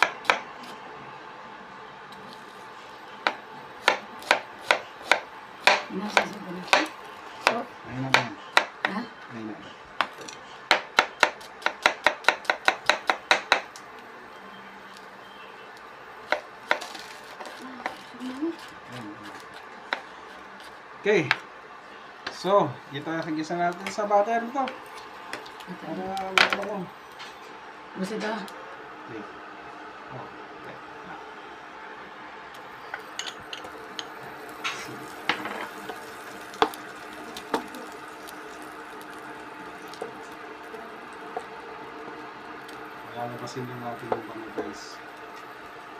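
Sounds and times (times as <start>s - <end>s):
faint butter sizzle: 0.1s - 8.2s, 13.7s - 21.3s, 21.9s - 28.5s, 32.6s - 45.9s.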